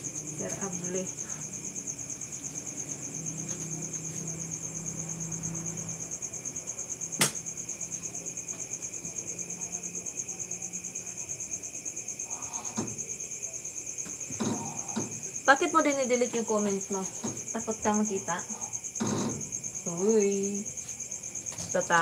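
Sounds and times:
cricket trilling: 0.0s - 22.0s.

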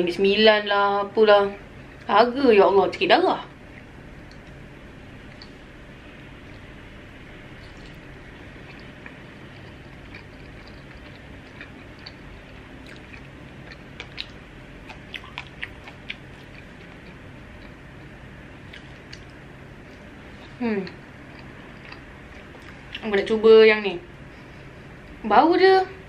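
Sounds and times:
low background hum: 0.0s - 26.0s
person chewing food: 5.2s - 5.7s, 7.6s - 20.6s, 21.2s - 23.1s.

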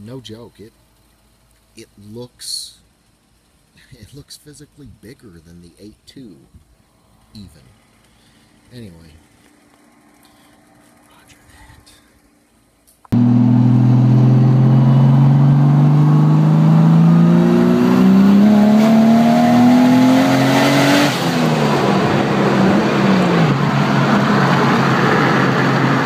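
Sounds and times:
turbo hiss: 0.0s - 13.2s
turbocharged car engine revving: 13.2s - 26.0s.

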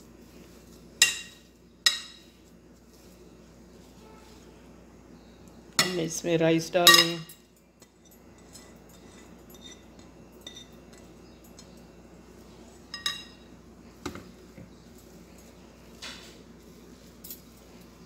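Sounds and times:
metal masher clinking on glass bowl: 6.9s - 7.3s.

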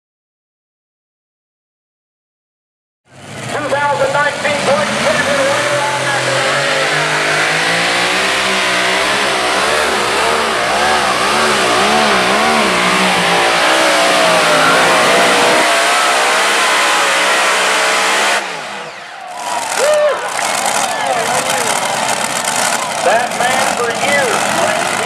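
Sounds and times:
tractor engine at full power: 3.1s - 25.0s.

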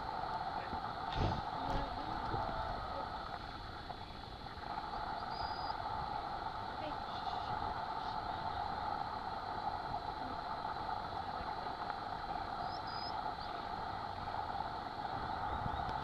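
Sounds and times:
droning hum: 0.0s - 16.0s.

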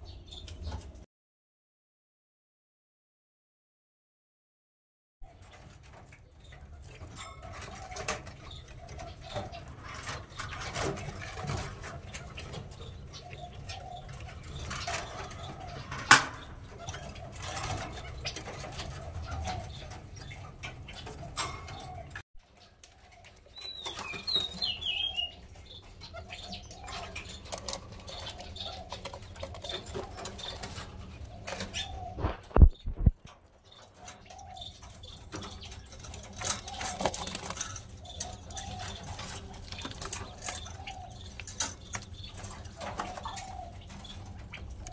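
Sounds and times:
birds cooing: 5.2s - 44.9s
high chirping call: 23.5s - 27.4s.

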